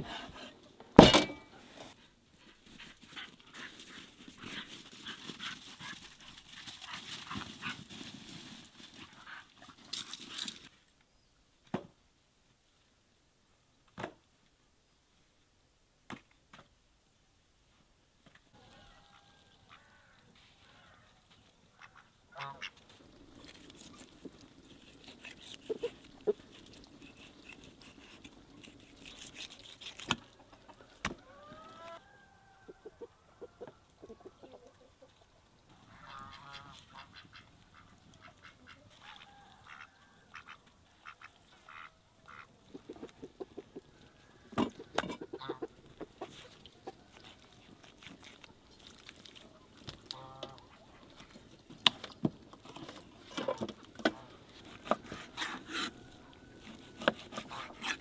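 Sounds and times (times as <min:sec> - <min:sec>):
poultry honking calls: 0:21.8 - 0:22.8, 0:35.9 - 0:42.5, 0:50.1 - 0:50.8
knife cutting meat on wooden board: 0:56.6 - 0:58.0.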